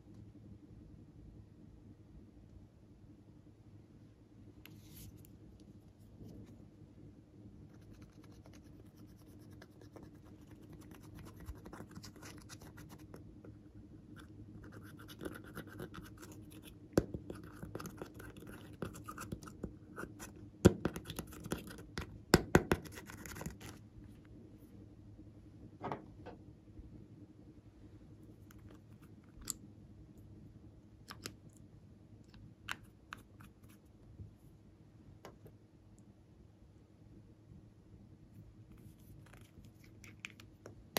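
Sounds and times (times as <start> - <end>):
scissors scratching powder: 7.8 - 13.2, 14.2 - 23.8.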